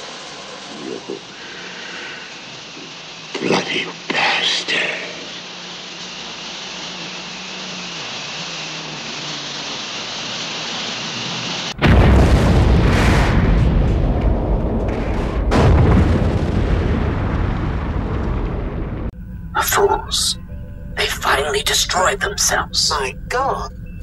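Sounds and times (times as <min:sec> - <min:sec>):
steady hiss: 0:00.0 - 0:11.8
long rumbling explosion: 0:11.7 - 0:19.2.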